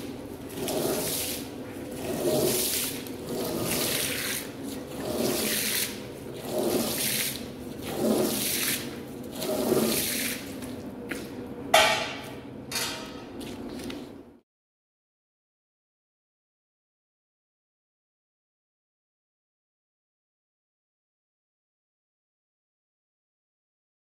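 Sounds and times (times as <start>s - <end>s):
brush scrubbing wet rug: 0.0s - 10.9s.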